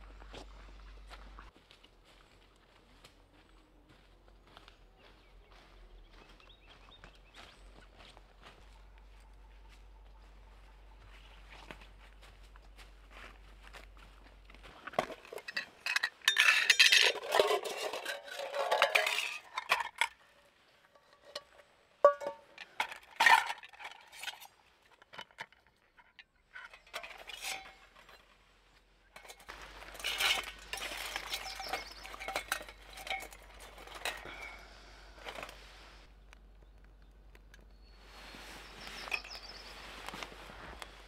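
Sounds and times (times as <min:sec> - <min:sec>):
metal cookware clinking: 0:15.2 - 0:20.1, 0:20.9 - 0:24.5, 0:26.6 - 0:28.2, 0:29.2 - 0:34.5.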